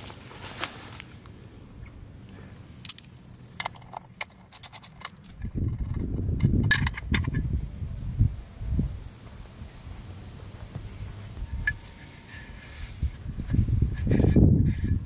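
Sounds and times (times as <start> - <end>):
ratchet clicking: 2.7 - 7.5.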